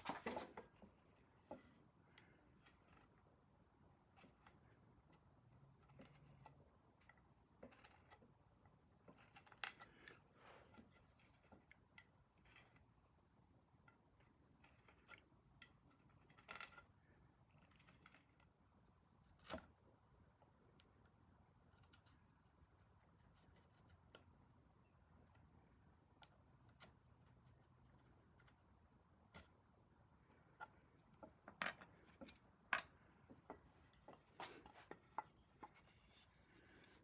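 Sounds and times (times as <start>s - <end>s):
wooden chair parts tapping: 30.5s - 36.9s.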